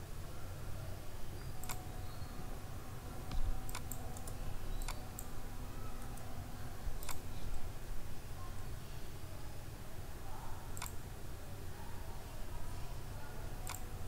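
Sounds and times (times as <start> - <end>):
low steady hum: 0.0 - 14.0
mouse and keyboard clicks: 7.0 - 7.2, 13.7 - 13.9.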